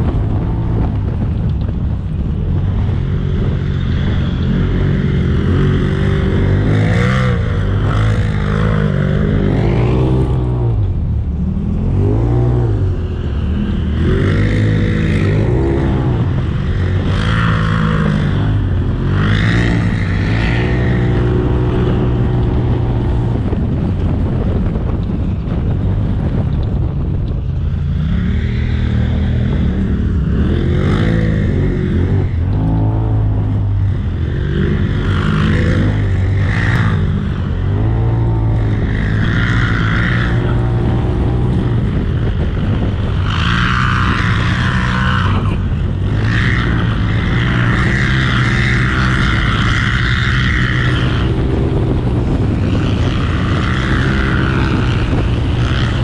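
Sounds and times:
engine revving under load: 0:00.0 - 0:56.0.

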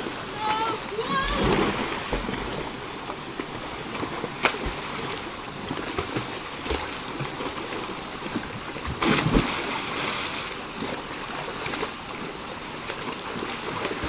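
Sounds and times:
river cascade rushing: 0:00.0 - 0:08.0
swimmers splashing: 0:00.0 - 0:11.0
big splash: 0:00.4 - 0:02.8, 0:08.9 - 0:10.5.

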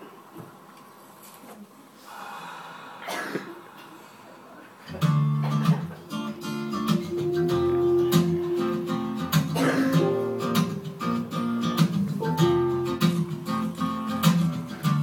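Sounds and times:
acoustic guitar strumming: 0:04.9 - 0:15.0.

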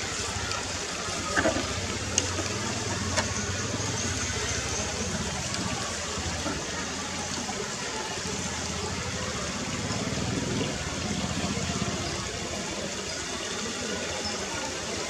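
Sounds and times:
stream running over rocks: 0:00.0 - 0:15.0
toy truck wheels splashing water: 0:00.0 - 0:15.0.

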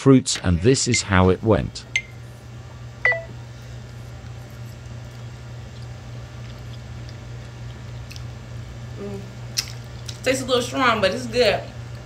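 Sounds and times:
steady low hum: 0:00.0 - 0:12.0
people chewing: 0:03.6 - 0:10.2.

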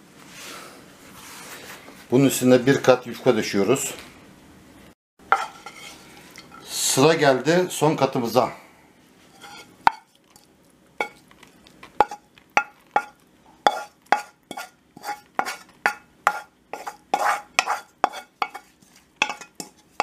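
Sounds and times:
utensil scraping metal frying pan: 0:05.3 - 0:06.7, 0:09.2 - 0:10.2, 0:11.9 - 0:20.0.

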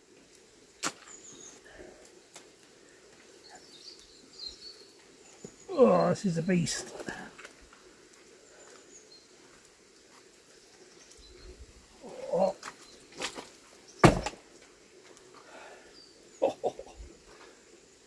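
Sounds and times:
person grunting: 0:12.0 - 0:12.6
stones and debris knocking: 0:12.6 - 0:14.5.

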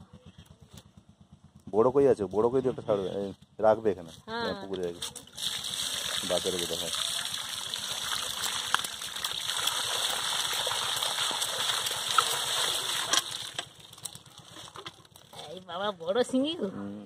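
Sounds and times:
water gushing onto sieve: 0:04.9 - 0:15.2.

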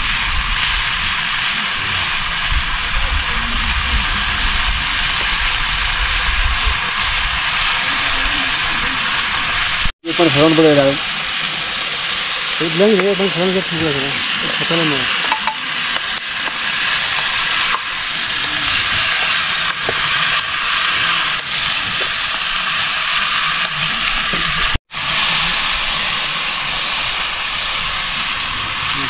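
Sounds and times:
food sizzling in hot oil: 0:00.0 - 0:29.0.

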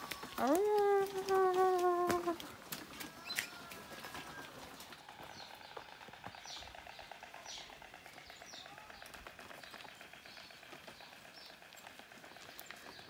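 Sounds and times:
bird chirping: 0:05.2 - 0:13.0.

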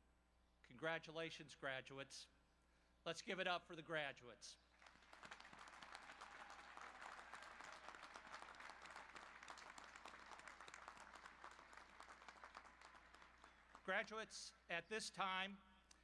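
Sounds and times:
faint crowd applause: 0:04.7 - 0:14.1.

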